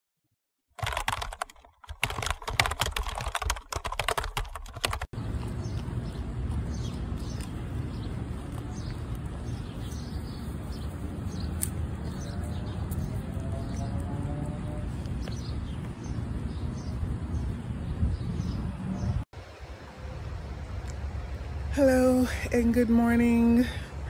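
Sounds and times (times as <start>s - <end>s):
rapid dense clicking: 0.8s - 5.1s.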